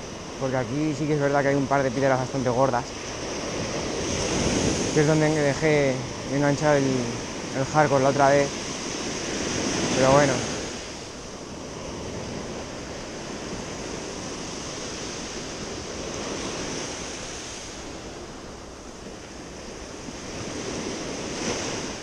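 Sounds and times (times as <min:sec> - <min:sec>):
surf washing against rocks: 0:00.0 - 0:22.0
wind on microphone: 0:00.0 - 0:22.0.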